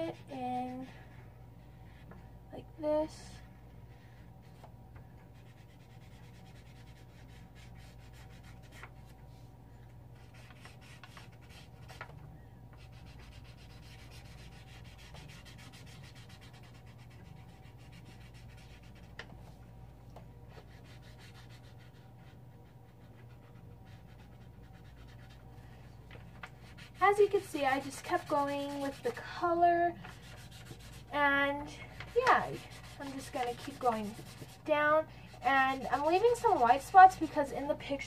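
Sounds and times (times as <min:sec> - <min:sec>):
faint steady hum: 0:00.0 - 0:38.0
marker nib rubbing on paper: 0:10.2 - 0:12.1, 0:12.8 - 0:19.1, 0:23.0 - 0:25.4, 0:26.6 - 0:29.2, 0:30.2 - 0:31.1, 0:31.9 - 0:34.7, 0:35.3 - 0:37.4.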